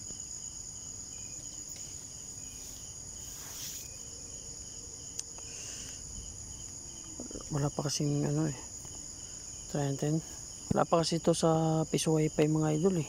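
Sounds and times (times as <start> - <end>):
high-pitched insect trill: 0.0 - 13.0
pulsing insect chirp: 0.0 - 13.0
faint rustle: 1.3 - 4.2.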